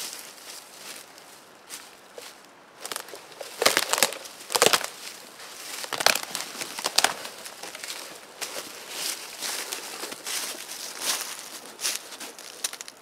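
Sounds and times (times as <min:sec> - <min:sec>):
footsteps in dry leaves: 0:00.0 - 0:13.0
wood knocks and crunching: 0:02.8 - 0:05.1, 0:05.7 - 0:08.6, 0:11.1 - 0:13.0
dead tree cracking and snapping: 0:02.8 - 0:13.0.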